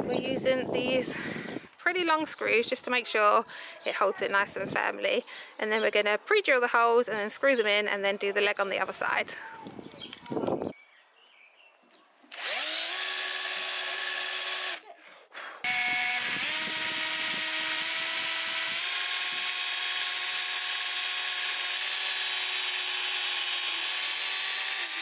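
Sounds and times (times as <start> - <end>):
cordless drill motor whining: 12.3 - 14.8, 15.6 - 25.0.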